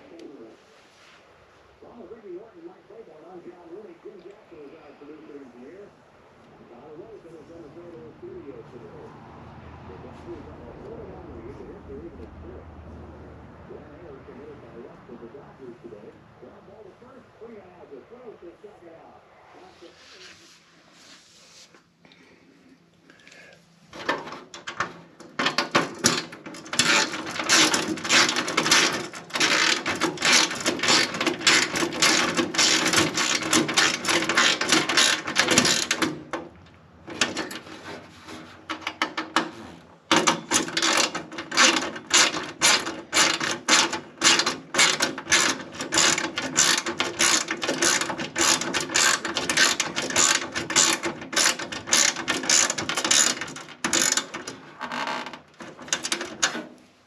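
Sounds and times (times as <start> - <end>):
ratchet wrench clicking: 26.0 - 36.0, 40.2 - 54.5.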